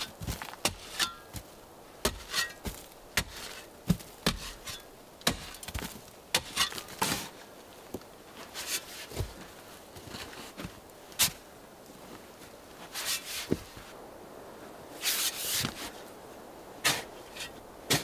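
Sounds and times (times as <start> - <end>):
shovel chopping into soil: 2.0 - 7.3, 16.8 - 17.1.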